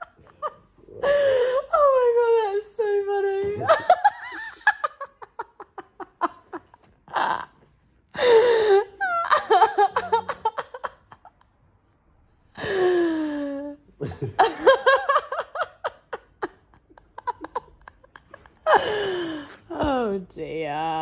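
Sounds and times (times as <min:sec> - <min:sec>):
hearty laughter: 0:09.0 - 0:11.5, 0:14.0 - 0:19.6.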